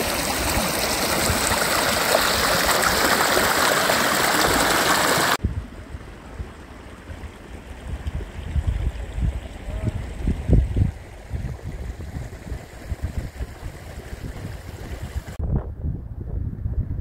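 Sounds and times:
stream rushing over stones: 0.0 - 5.4.

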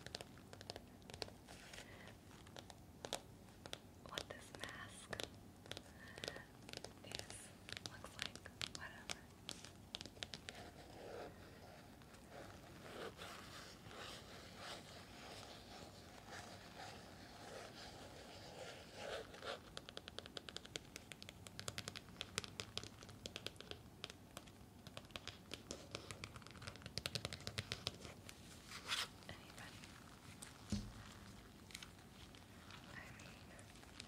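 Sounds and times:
fingernails scratching on plastic mask: 9.5 - 20.5.

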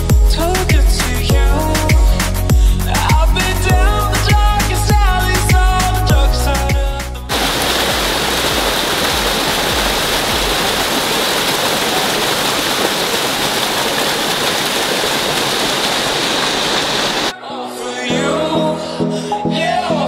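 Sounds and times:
waterfall splashing over rocks: 7.3 - 17.3.

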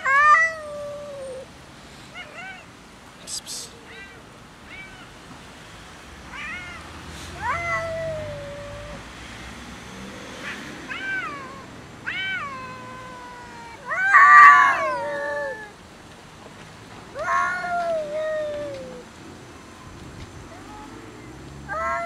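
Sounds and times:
cats meowing and yowling: 0.0 - 1.5, 2.1 - 2.7, 3.8 - 5.1, 6.3 - 9.1, 10.4 - 15.8, 17.1 - 19.0, 21.7 - 22.0.

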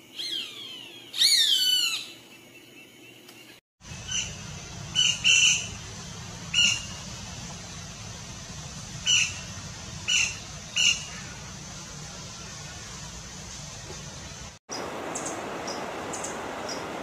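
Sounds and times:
low background rumble: 3.8 - 17.0
woodpeckers squawking: 9.0 - 11.6.

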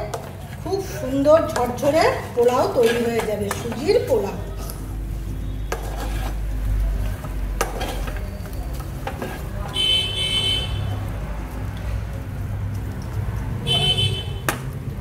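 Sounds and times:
spatula stirring rice in a pan: 0.0 - 10.0.

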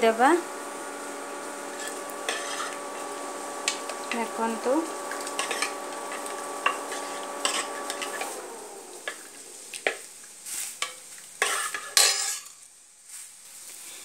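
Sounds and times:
steady hum: 0.0 - 9.7
low sizzle: 0.0 - 14.0
spoon scraping pot wall: 1.6 - 4.3, 5.1 - 8.4, 10.8 - 12.5
spoon stirring stew in metal pot: 1.7 - 4.2, 5.0 - 8.4, 9.0 - 10.1, 10.8 - 12.5.

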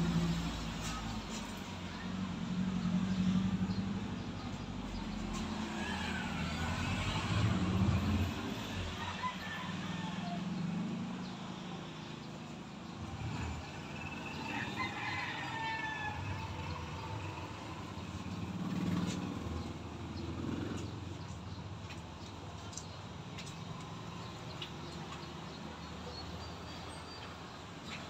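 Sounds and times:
rooster crowing: 8.8 - 10.5, 14.2 - 16.7.

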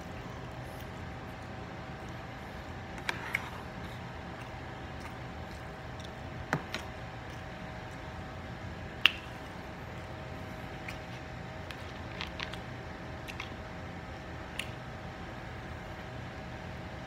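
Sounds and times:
steady hum: 0.0 - 17.0
quiet chewing: 0.3 - 13.6.

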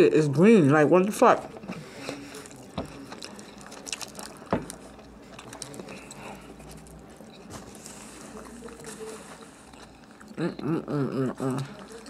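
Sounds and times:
person biting and chewing: 2.1 - 10.7.

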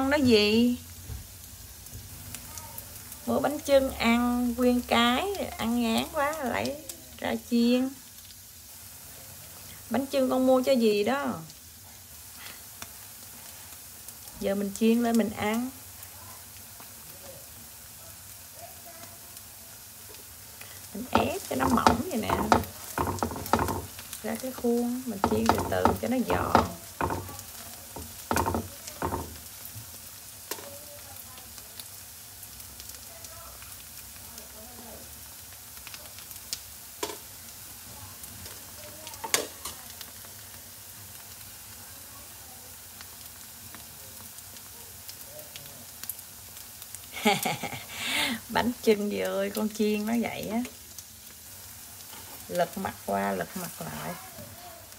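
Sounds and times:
food sizzling in oil: 0.0 - 54.9
spatula scraping pan: 21.0 - 29.5, 52.1 - 52.5.

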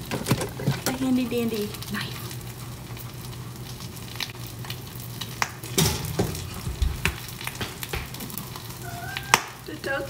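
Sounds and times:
egg sizzling in oil: 0.0 - 10.0.

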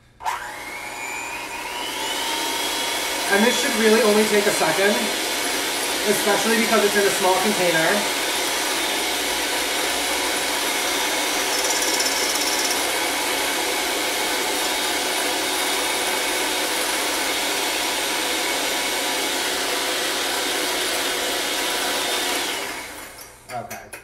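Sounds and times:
electric hand mixer whipping: 0.0 - 23.4.

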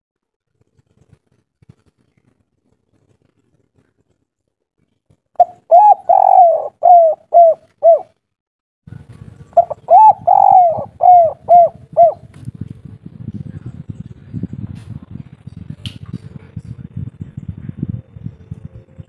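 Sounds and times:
dove cooing: 5.4 - 8.1, 9.6 - 12.3.

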